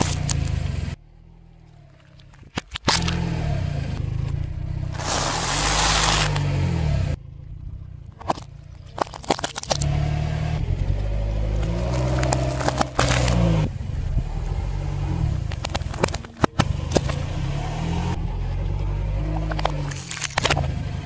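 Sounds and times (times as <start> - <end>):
car engine running low: 0.0 - 21.0
sharp cracks and snaps: 2.0 - 3.3, 8.2 - 10.0, 19.4 - 20.8.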